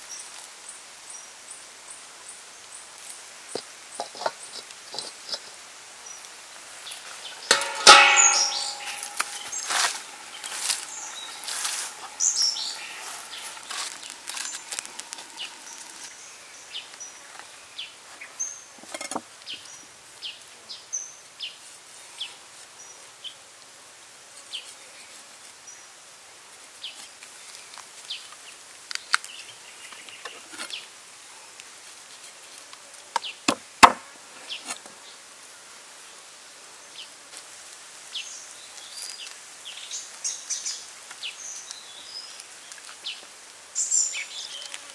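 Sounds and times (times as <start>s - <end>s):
insects: 0.0s - 44.9s
birds chirping: 6.8s - 18.7s.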